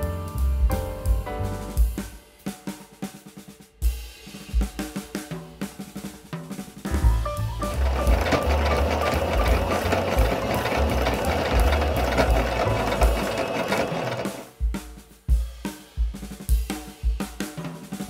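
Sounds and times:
music with drum beat: 0.0 - 18.0
sewing machine stitching: 7.6 - 14.5.

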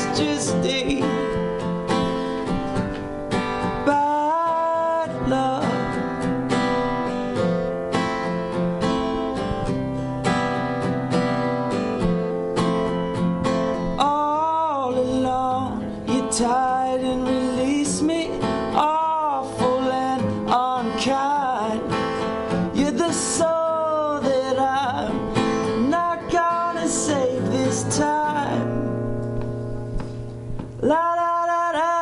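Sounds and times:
person singing: 0.0 - 1.4, 3.7 - 6.2, 14.0 - 29.0
acoustic guitar strumming: 0.0 - 32.0.

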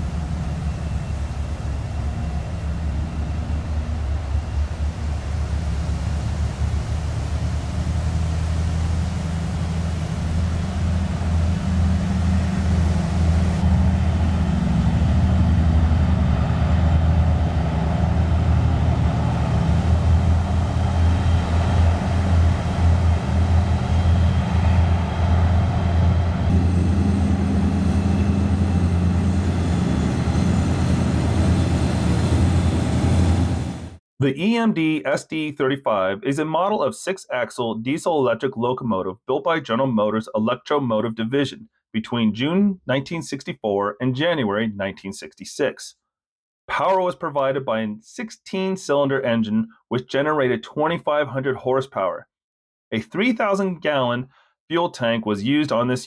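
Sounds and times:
diesel locomotive engine throbbing: 0.0 - 34.0.

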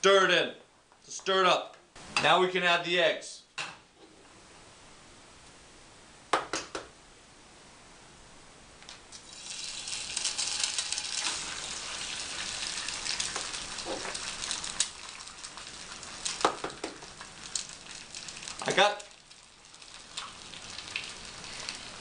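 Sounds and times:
eggs sizzling in oil: 9.1 - 22.0
eggs tapped on a pan: 16.2 - 17.2.

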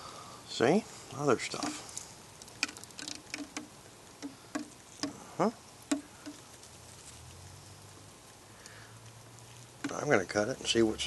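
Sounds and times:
rock knocking against saw table: 2.6 - 5.2, 5.9 - 6.4.

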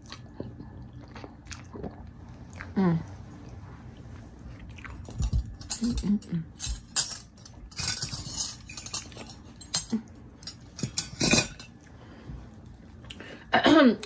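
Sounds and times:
cutlery clinking on a dish: 5.1 - 11.8.

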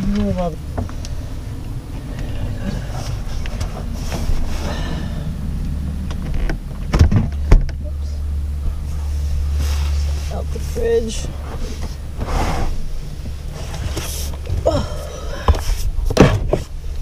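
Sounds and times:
loud bumps: 0.0 - 7.9
low steady rumble: 0.0 - 17.0
refrigerator scraping and rattling: 2.3 - 5.2, 9.0 - 14.7.

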